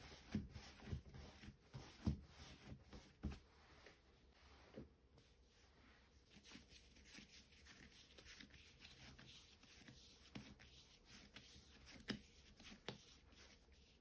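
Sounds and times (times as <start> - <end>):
hands rubbing and tapping dough: 6.4 - 13.7.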